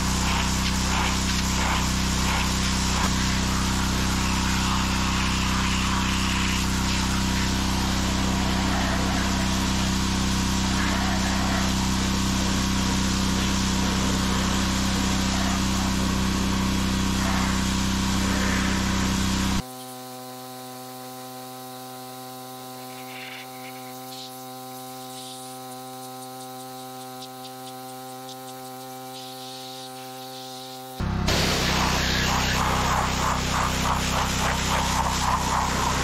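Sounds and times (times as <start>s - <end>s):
engine-like tone: 0.0s - 19.6s, 28.5s - 36.0s
pressure washer spraying water: 0.0s - 19.6s, 23.0s - 36.0s.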